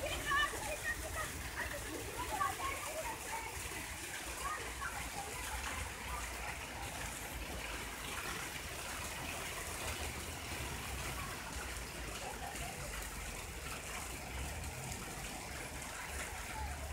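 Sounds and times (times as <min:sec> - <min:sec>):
rain and hail on paving: 0:00.0 - 0:16.9.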